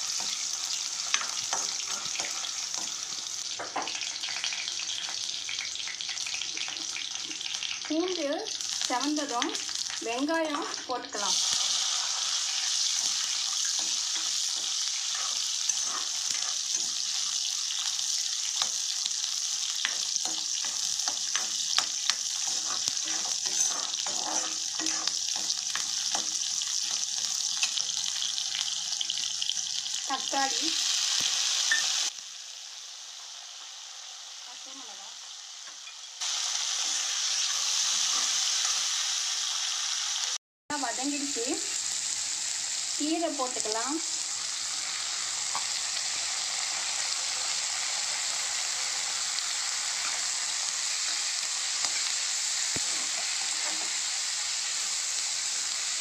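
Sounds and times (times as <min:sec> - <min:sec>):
oil sizzling in a pan: 0:00.0 - 0:56.0
metal ladle scraping a pan: 0:10.5 - 0:17.4, 0:19.8 - 0:28.2, 0:52.8 - 0:54.0.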